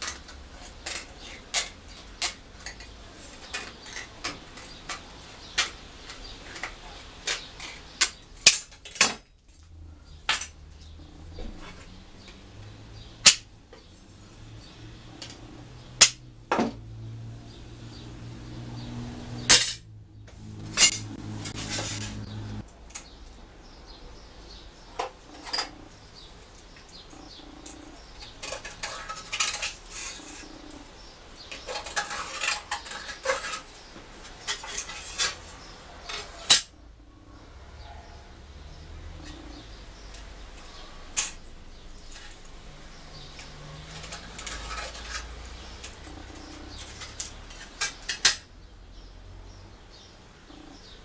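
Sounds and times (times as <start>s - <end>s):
snips cutting sheet metal: 13.2s - 13.5s, 16.0s - 16.3s, 19.4s - 19.9s, 20.5s - 23.1s.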